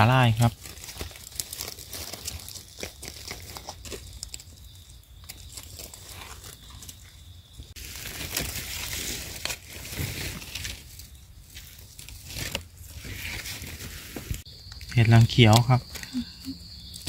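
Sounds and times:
dry leaves rustling and crackling: 0.0 - 14.5.

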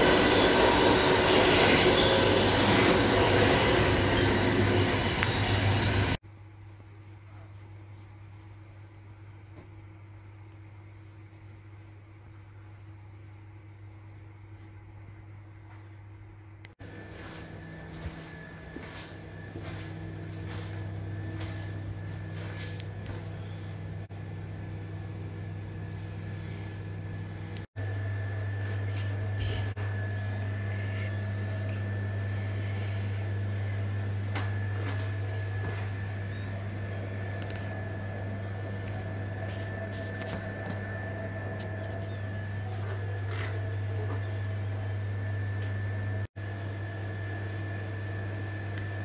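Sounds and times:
thin high whine: 0.0 - 6.2
train ventilation hum: 0.0 - 49.0.

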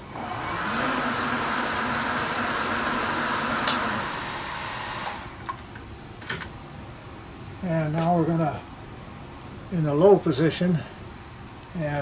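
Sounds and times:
milling machine spindle whirring: 0.0 - 5.5.

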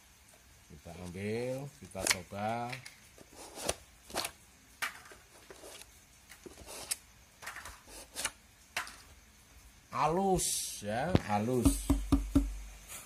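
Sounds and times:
plastic shims scraping and clicking: 1.0 - 9.1.

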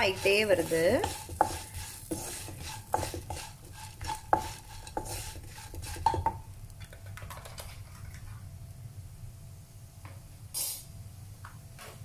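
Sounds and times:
spatula knocking against pan: 0.0 - 6.4
oil sizzling: 0.0 - 8.8.

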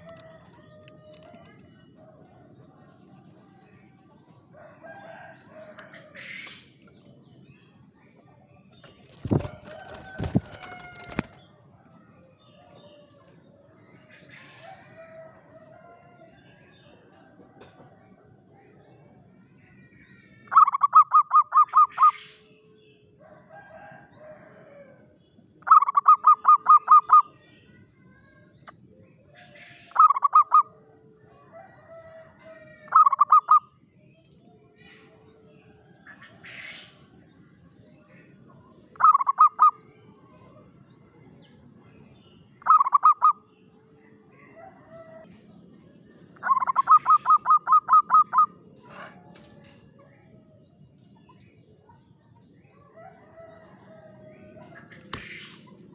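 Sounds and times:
dove cooing in staccato phrases: 39.0 - 39.7, 46.4 - 49.3.

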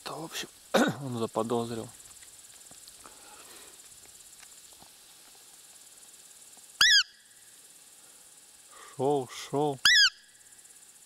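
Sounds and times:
insect chirring: 0.0 - 11.0
high-pitched deer call squeak: 6.8 - 7.2, 9.8 - 10.3.

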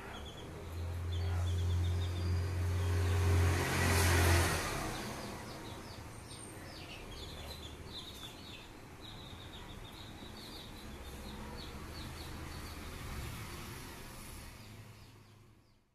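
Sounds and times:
chicks peeping: 0.0 - 3.4, 4.9 - 13.0
motor vehicle passing: 0.0 - 15.8.

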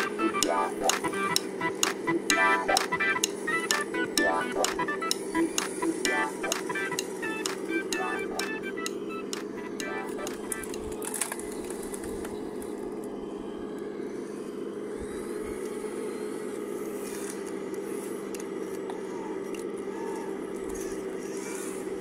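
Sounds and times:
gravel scraping and clicking: 10.5 - 12.8.

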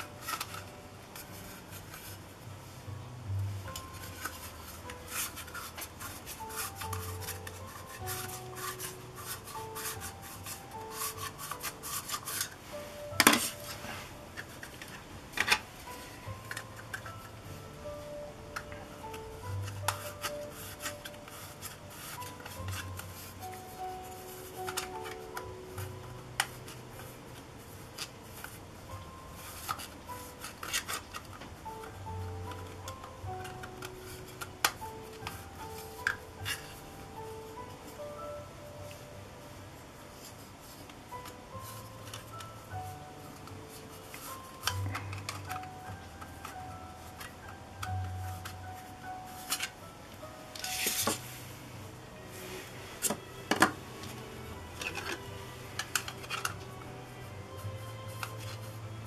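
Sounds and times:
soft background music: 0.0 - 59.0
cloth rubbing plastic: 3.6 - 18.0.

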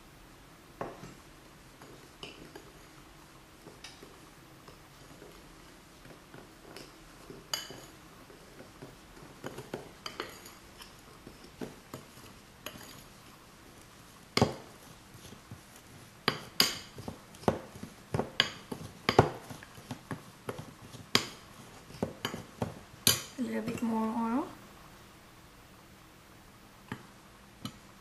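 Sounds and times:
metal spoon scraping a bowl: 6.7 - 8.6, 9.2 - 13.2.

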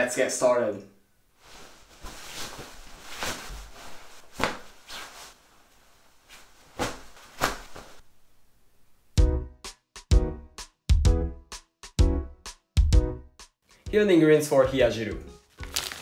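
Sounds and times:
fabric rustling: 1.3 - 8.3
cord swishing: 1.4 - 5.4, 6.2 - 8.0
music with a beat: 9.2 - 15.5.

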